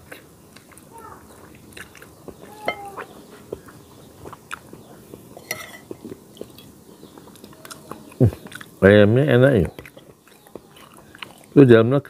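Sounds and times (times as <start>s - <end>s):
man chewing: 0.0s - 8.8s, 9.7s - 11.6s
metal spoon clinking on plate: 2.6s - 3.0s, 5.4s - 6.7s.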